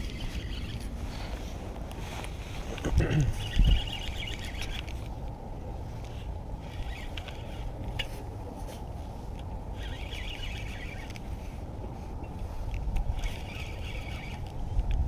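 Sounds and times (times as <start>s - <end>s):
fishing reel clicking whir: 0.0s - 1.0s, 3.4s - 5.4s, 6.0s - 8.1s, 9.3s - 11.3s, 12.4s - 15.0s
wind on microphone: 0.0s - 7.9s.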